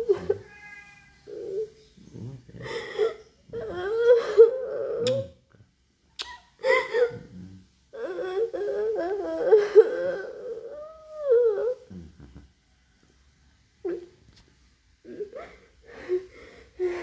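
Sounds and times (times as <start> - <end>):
girl sobbing and wailing: 3.6 - 5.1, 8.0 - 11.8.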